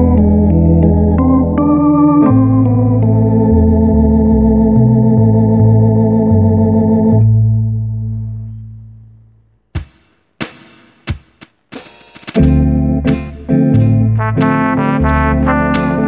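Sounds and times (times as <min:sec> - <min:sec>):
electronic organ jazz chords: 0:00.0 - 0:08.6, 0:12.3 - 0:16.0
organ bass line: 0:00.0 - 0:09.6, 0:12.4 - 0:16.0.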